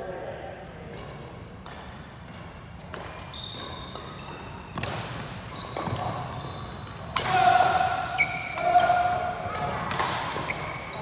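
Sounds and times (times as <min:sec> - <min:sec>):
racket striking shuttlecock: 0:01.6 - 0:06.3, 0:06.9 - 0:10.8
shoes squeaking on wooden floor: 0:03.2 - 0:07.0, 0:10.3 - 0:11.0.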